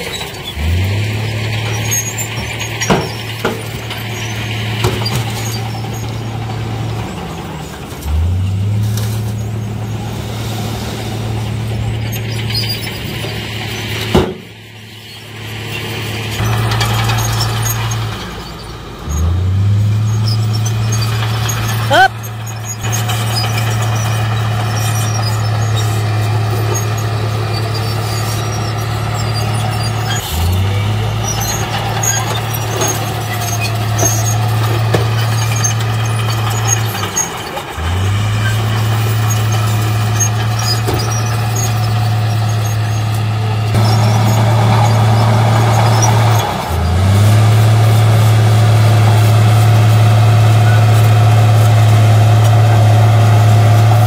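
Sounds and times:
heavy diesel engines droning: 0.0s - 54.0s.

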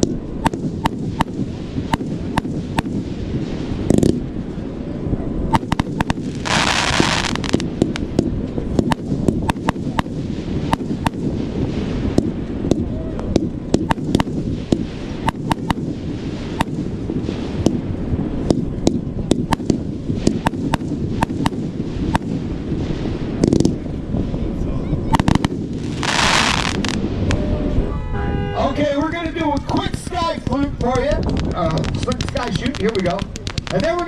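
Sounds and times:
firework pops and cracks: 0.0s - 3.1s, 3.8s - 4.3s, 5.5s - 17.8s, 18.4s - 22.4s, 23.4s - 23.8s, 25.1s - 27.4s, 29.5s - 34.0s
firework hissing burst: 0.0s - 27.6s.

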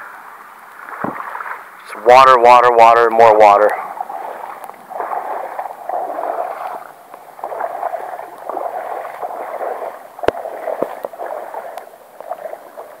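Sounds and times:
wading through water: 0.6s - 13.0s.

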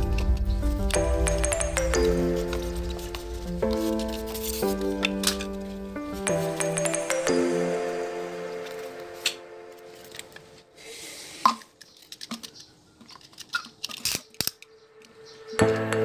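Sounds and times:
background music: 0.0s - 10.8s, 14.4s - 16.0s
plastic bottle and knife clicking: 3.1s - 5.6s, 11.4s - 14.8s.

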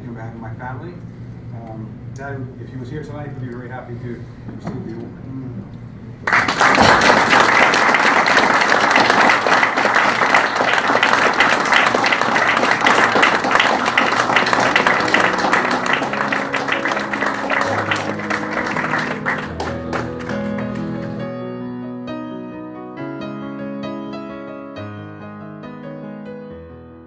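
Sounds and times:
audience applauding: 6.2s - 21.2s
piano music: 6.7s - 27.0s.

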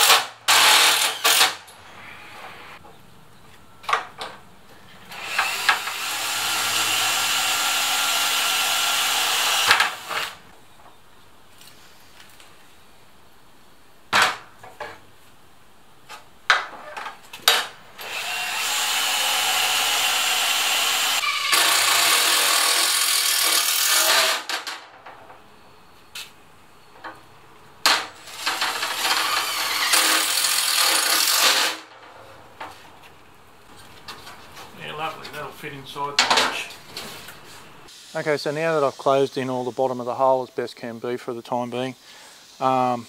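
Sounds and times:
cordless drill boring: 0.0s - 1.5s, 5.1s - 10.3s, 18.0s - 24.5s, 28.3s - 31.8s.

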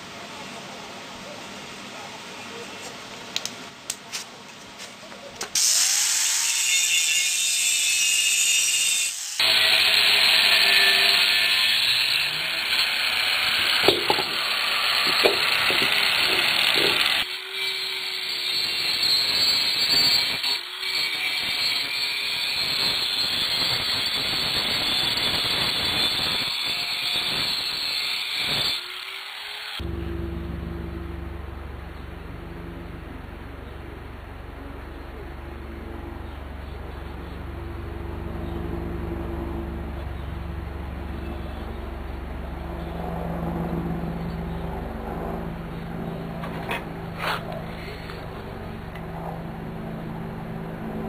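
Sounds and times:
angle grinder grinding steel: 5.6s - 30.1s.

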